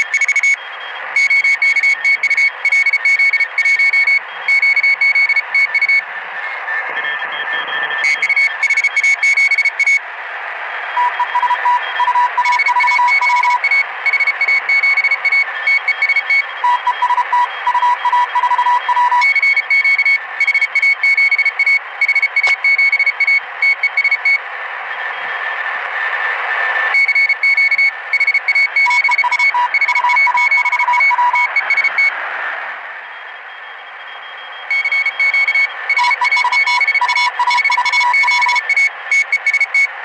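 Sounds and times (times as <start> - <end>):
morse code beeps: 0.0 - 6.1, 6.9 - 10.0, 11.0 - 24.4, 26.9 - 32.2, 33.1 - 39.9
radio band hiss: 0.0 - 18.9, 19.5 - 40.0.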